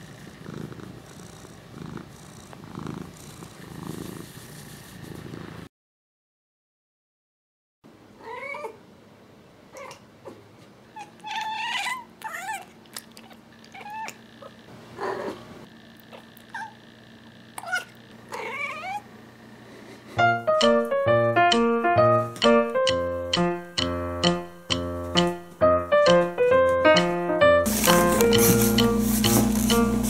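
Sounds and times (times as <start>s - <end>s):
cat meowing: 11.0s - 14.2s, 17.6s - 19.1s.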